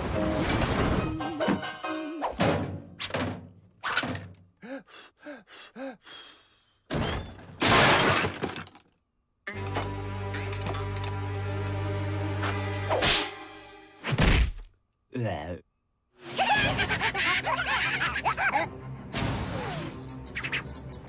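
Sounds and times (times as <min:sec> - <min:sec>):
cartoon thuds and clatters: 0:02.4 - 0:04.4
loud crash of objects falling: 0:06.9 - 0:08.9.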